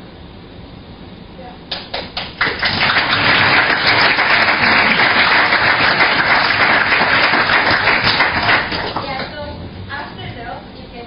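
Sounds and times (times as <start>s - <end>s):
audience applauding: 1.7s - 9.3s.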